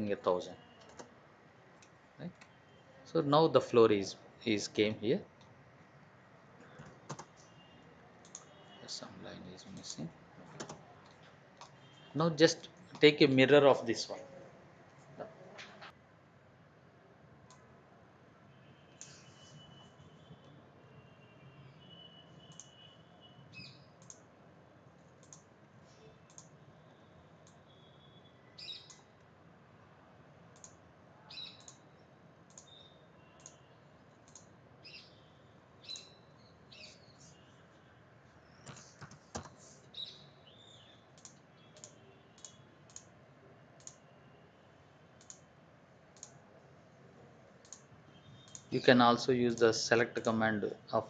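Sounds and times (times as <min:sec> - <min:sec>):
computer mouse clicks: 0:00.8 - 0:01.1, 0:06.8 - 0:07.5, 0:08.2 - 0:08.5, 0:09.7 - 0:11.8, 0:19.0 - 0:19.3, 0:22.5 - 0:22.8, 0:24.0 - 0:24.3, 0:25.1 - 0:25.5, 0:26.3 - 0:26.6, 0:30.6 - 0:30.8, 0:31.4 - 0:31.8, 0:32.5 - 0:34.5, 0:41.2 - 0:43.1, 0:43.8 - 0:44.0, 0:45.2 - 0:45.5, 0:46.1 - 0:46.4, 0:47.6 - 0:48.8.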